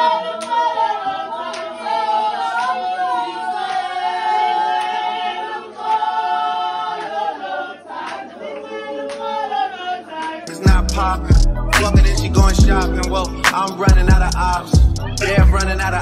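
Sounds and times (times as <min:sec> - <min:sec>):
women singing a cappella: 0:00.0 - 0:16.0
sharp hand claps: 0:09.1 - 0:09.3.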